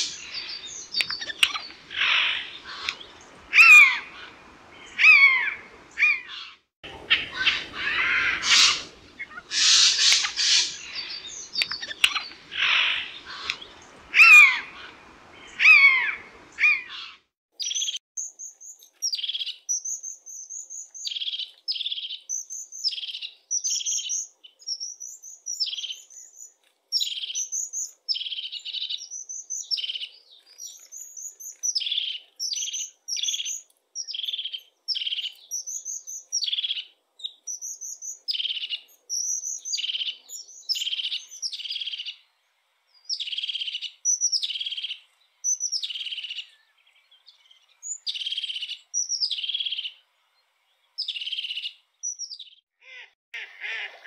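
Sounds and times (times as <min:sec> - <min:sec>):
bird calling with purring trill: 0:00.0 - 0:17.2.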